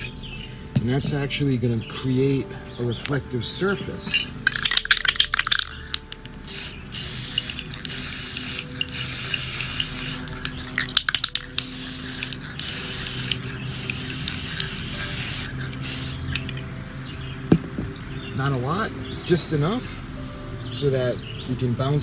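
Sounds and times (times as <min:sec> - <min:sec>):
spray can clicks: 0:04.1 - 0:16.6
aerosol spray can spraying: 0:04.5 - 0:16.5.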